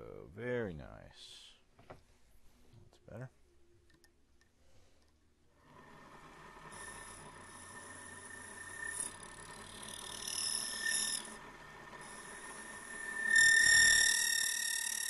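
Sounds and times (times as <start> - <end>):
lathe high whine: 5.6 - 15.0
cutting tool squealing on brass: 6.7 - 15.0.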